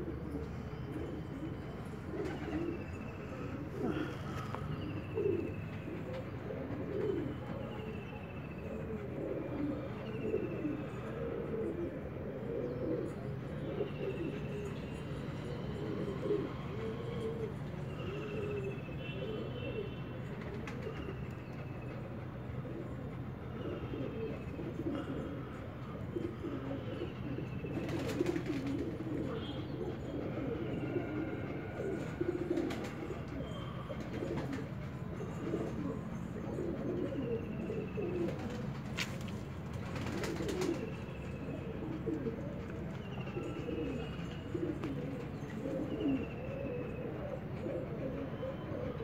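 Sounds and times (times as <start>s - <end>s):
pigeons cooing: 0.0s - 49.0s.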